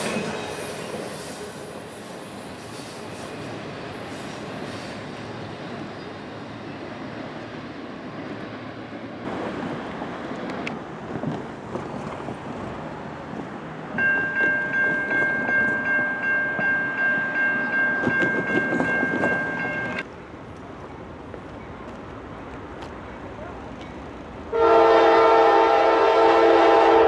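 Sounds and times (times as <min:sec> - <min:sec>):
freight train rolling on rails: 0:00.0 - 0:27.0
diesel locomotive horn chord: 0:24.5 - 0:27.0.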